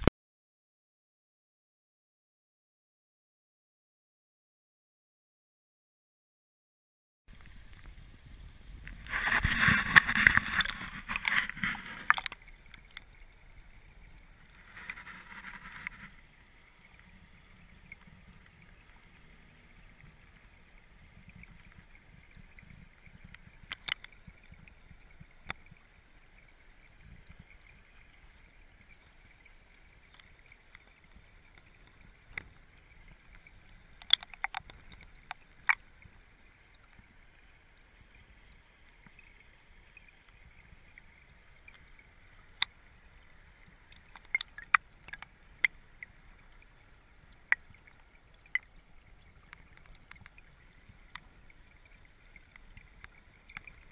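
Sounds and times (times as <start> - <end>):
muffled underwater stream rushing: 7.3 - 53.9.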